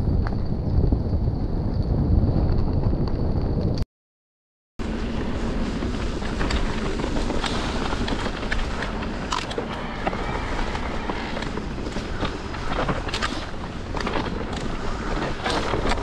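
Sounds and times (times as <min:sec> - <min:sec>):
bike tyres rolling on dirt: 0:00.0 - 0:03.8, 0:04.8 - 0:16.0
bike rattling: 0:04.8 - 0:16.0
leaves and twigs crackling: 0:04.9 - 0:16.0.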